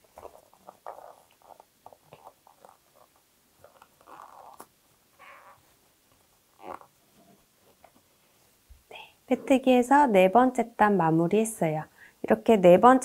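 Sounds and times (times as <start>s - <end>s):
yarn rustling and scraping: 0.0s - 8.6s.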